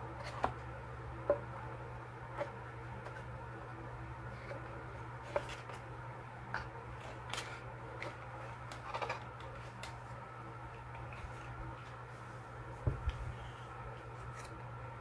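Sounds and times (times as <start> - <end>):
steady low hum: 0.0 - 15.0
plastic cards clicking and rustling: 7.0 - 10.0.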